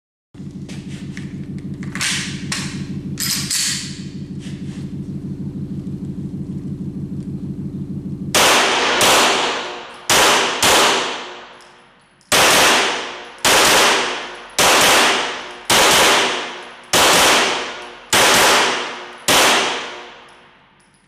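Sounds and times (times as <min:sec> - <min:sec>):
pistol shots echoing: 0:08.4 - 0:11.6, 0:12.3 - 0:20.2.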